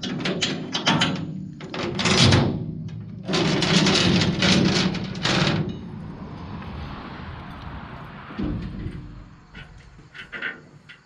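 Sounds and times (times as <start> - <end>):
chain rattling on metal deck: 0.0 - 6.0, 8.4 - 11.0.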